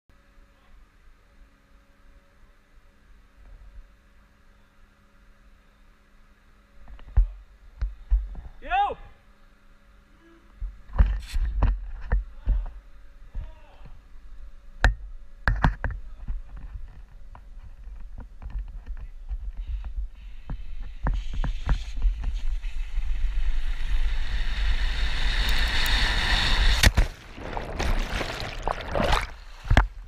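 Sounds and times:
water splashing and churning: 0:25.2 - 0:30.0.

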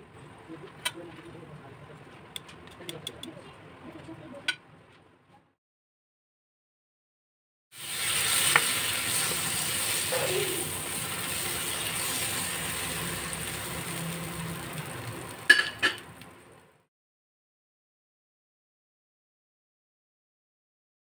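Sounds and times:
tortilla sizzling in oil: 0:07.8 - 0:16.6.

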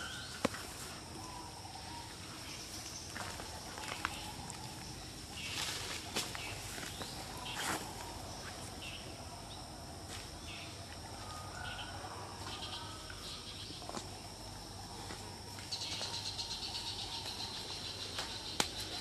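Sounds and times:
insects chirping: 0:00.0 - 0:19.0.

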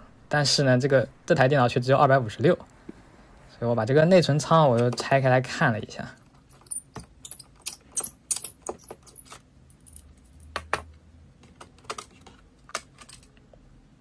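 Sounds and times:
laptop parts clicking and tapping: 0:10.5 - 0:13.3.

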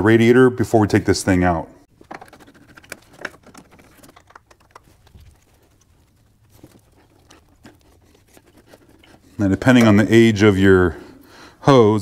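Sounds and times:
hand tools clicking and scraping: 0:02.0 - 0:11.3.

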